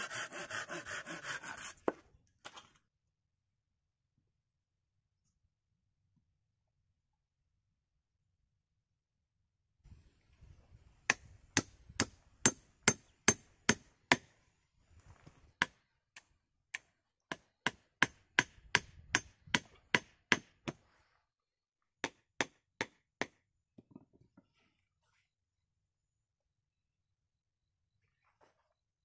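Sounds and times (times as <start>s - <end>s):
hatchet chopping wood: 0.0s - 2.0s, 11.1s - 14.3s, 16.7s - 20.8s, 22.0s - 23.4s.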